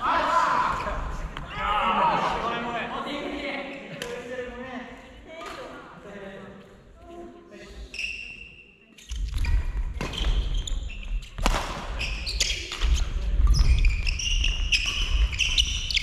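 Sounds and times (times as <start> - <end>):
shoes squealing on court floor: 7.9 - 16.0
racket striking shuttlecock: 11.4 - 12.0.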